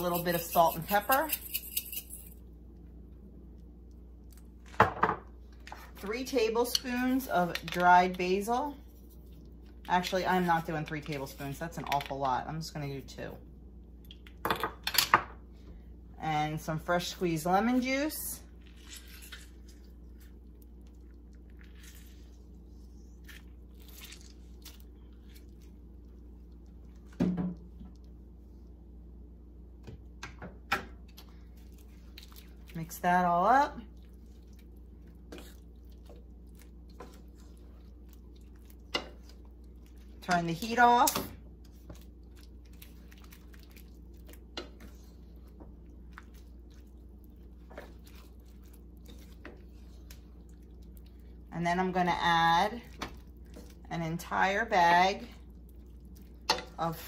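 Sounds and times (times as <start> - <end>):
steady low hum: 0.0 - 57.0
lemon pulp squishing: 18.5 - 28.3, 31.1 - 40.3, 41.4 - 51.8, 55.2 - 56.8.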